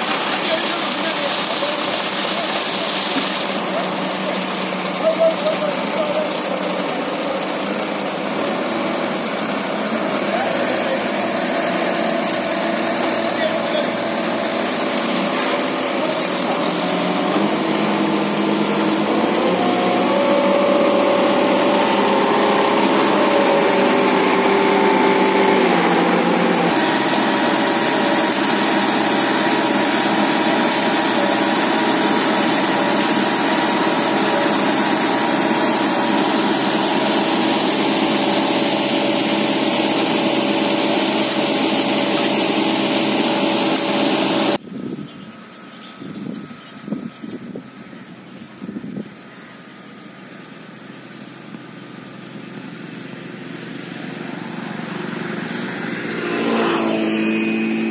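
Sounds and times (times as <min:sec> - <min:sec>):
concrete mixer diesel engine: 0:00.0 - 0:57.9.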